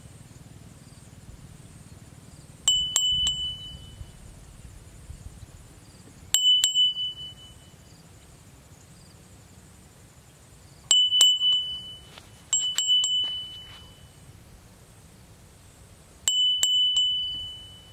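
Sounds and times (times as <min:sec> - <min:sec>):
small high-pitched bell ringing: 0:02.6 - 0:04.3, 0:06.3 - 0:08.0, 0:10.9 - 0:14.3, 0:16.2 - 0:17.9.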